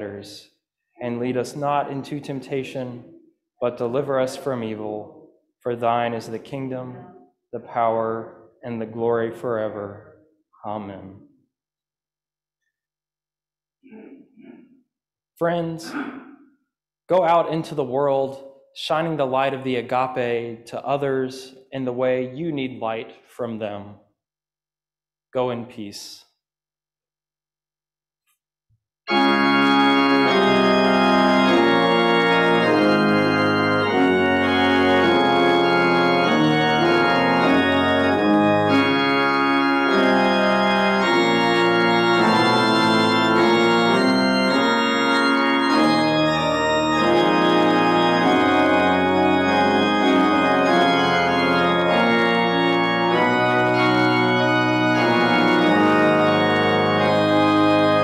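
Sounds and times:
pipe organ chords: 0.0s - 11.2s, 17.1s - 18.2s, 29.1s - 58.0s.

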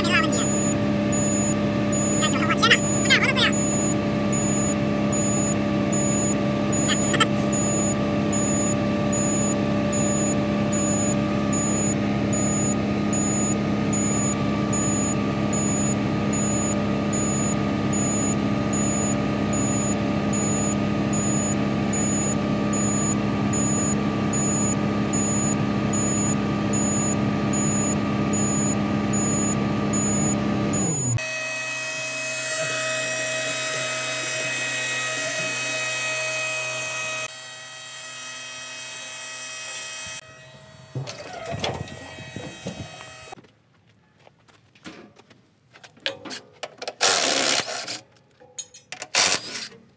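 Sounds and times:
diesel engine running at high rpm: 0.0s - 43.4s
high-pitched whining tool: 0.0s - 43.4s.

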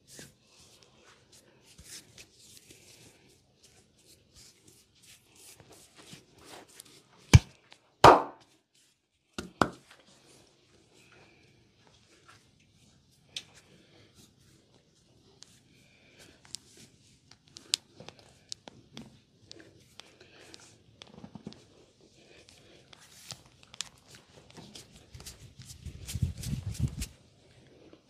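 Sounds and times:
palms rubbing on skin: 22.3s - 27.1s.

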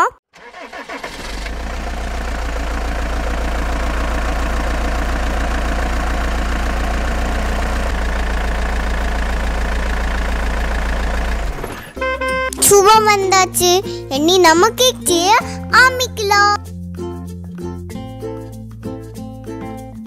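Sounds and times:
car engine idling: 0.4s - 14.1s.

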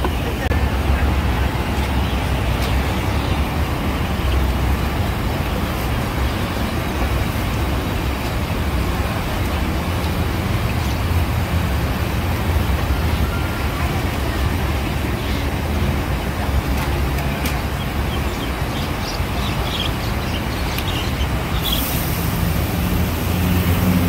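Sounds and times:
busy market din: 0.0s - 5.0s.

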